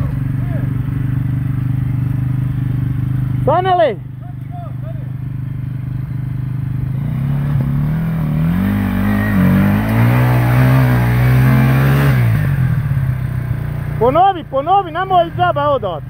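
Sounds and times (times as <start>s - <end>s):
dirt bike engine revving: 4.7s - 16.0s.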